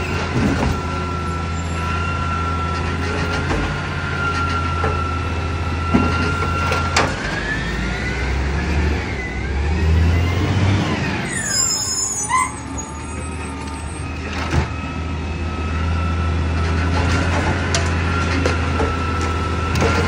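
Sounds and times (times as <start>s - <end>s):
truck diesel engine running: 0.0s - 20.0s
short high squeal: 11.0s - 14.3s.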